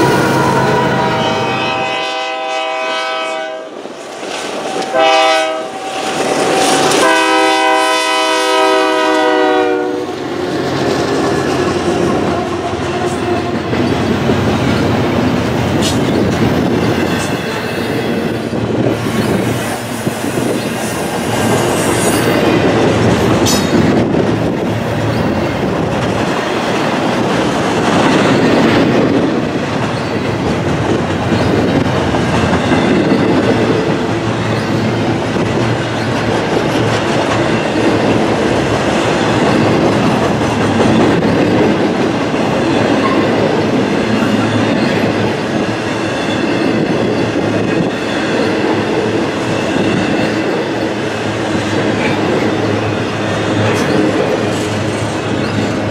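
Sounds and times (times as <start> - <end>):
locomotive air horn: 0.0 - 3.8, 4.6 - 10.2
train wheels on rails: 0.0 - 55.9.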